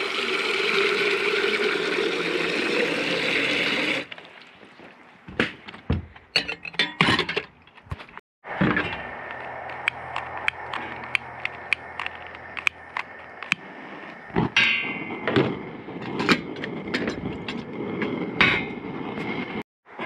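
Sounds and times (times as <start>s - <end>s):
metal pot clanking on grate: 6.4s - 7.5s.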